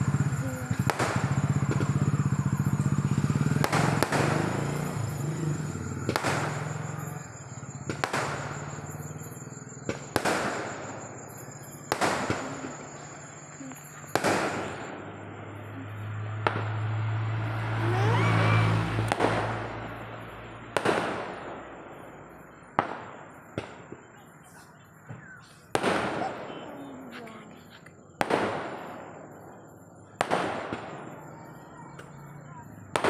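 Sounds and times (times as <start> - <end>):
firework shells bursting: 0.0 - 15.1
faint firework pops: 0.7 - 2.0, 6.0 - 7.2, 7.8 - 13.0, 19.1 - 20.2, 20.8 - 21.8, 22.7 - 29.4, 30.2 - 31.2.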